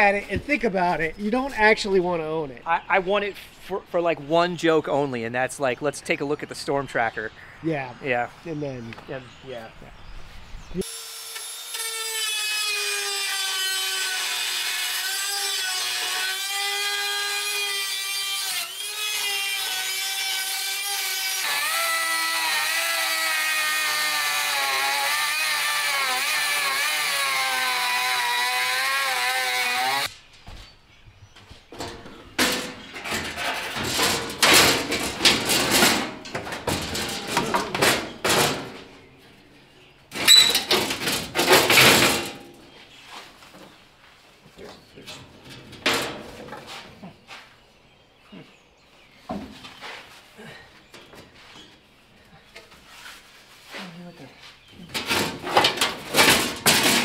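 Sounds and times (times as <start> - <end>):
cut-off wheel grinding steel: 10.8 - 30.1
sheet metal scraping and knocking: 31.7 - 38.9, 40.1 - 42.6, 45.0 - 47.0, 54.8 - 57.0.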